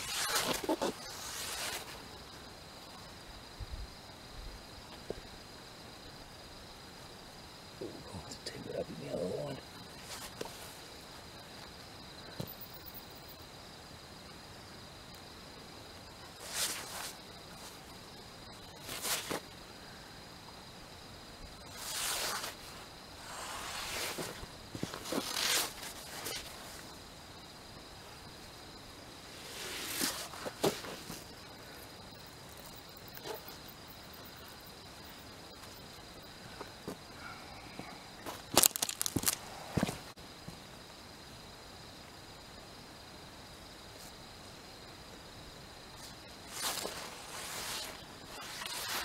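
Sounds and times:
insects trilling: 0.0s - 49.0s
scuffs and knocks on sand: 29.6s - 31.3s.

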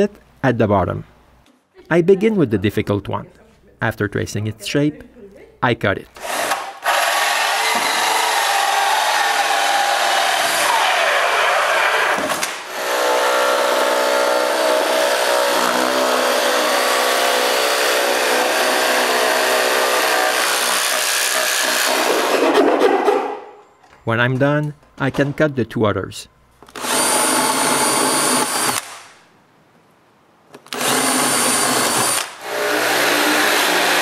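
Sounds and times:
cordless drill with hole saw: 6.2s - 22.4s, 26.7s - 29.0s, 30.7s - 34.0s
jigsaw cutting wood: 6.2s - 22.9s, 26.7s - 29.0s, 30.7s - 34.0s.

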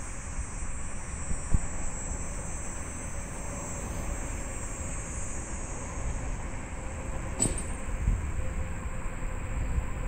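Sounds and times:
wind rumbling on microphone: 5.8s - 10.0s.

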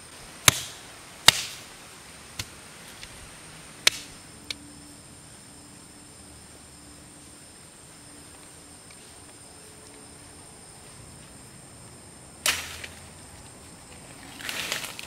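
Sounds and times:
machete chopping woody stem: 0.4s - 1.6s, 3.8s - 4.1s, 12.4s - 13.0s.

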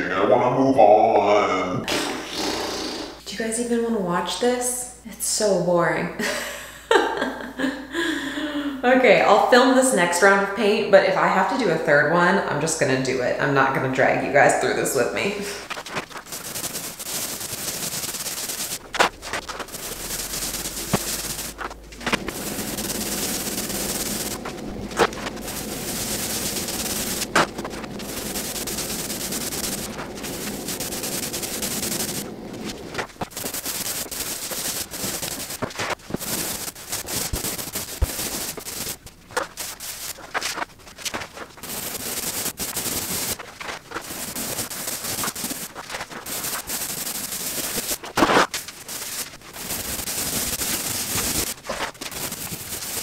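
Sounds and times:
paint roller crackling on wall: 11.2s - 53.0s.

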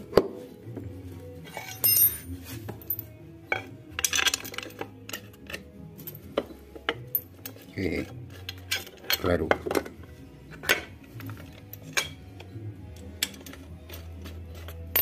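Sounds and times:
metal hand tools clinking: 1.5s - 9.9s.

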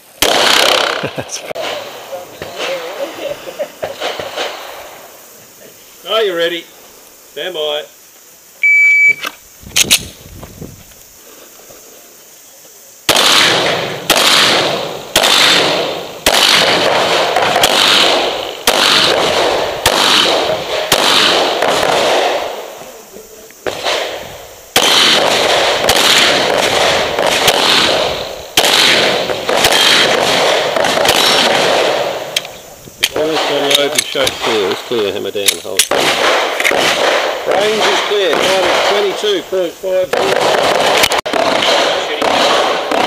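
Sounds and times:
handgun shots echoing: 13.1s - 22.4s.

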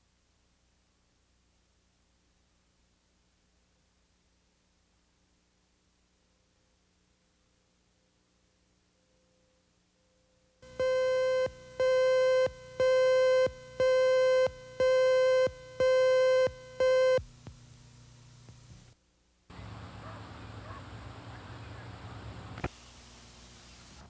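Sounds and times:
tape hiss and hum: 0.0s - 24.0s
buzzy electronic beeps: 10.6s - 17.2s.

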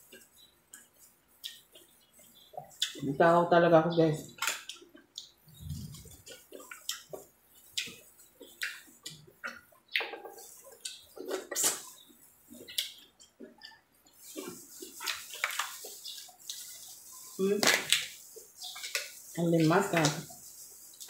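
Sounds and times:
person chewing and smacking: 0.1s - 3.0s, 4.4s - 19.2s.

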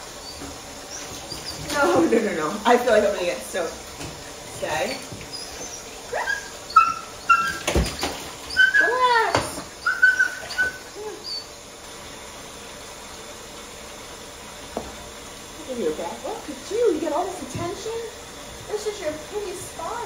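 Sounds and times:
puppy whimpering: 0.2s - 2.0s, 4.8s - 11.6s.

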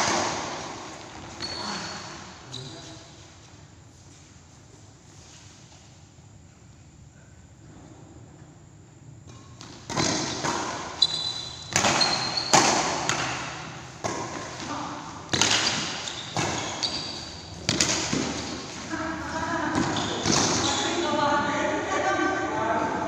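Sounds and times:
rackets hitting shuttlecock: 0.0s - 1.5s, 9.2s - 18.9s, 19.6s - 20.8s
shoe squeaks on court floor: 1.1s - 3.2s, 10.9s - 13.1s, 15.4s - 17.6s, 19.8s - 21.0s.

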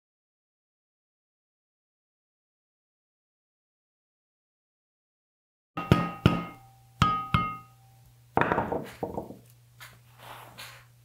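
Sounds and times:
chisel knocking metal frame: 5.8s - 7.7s.

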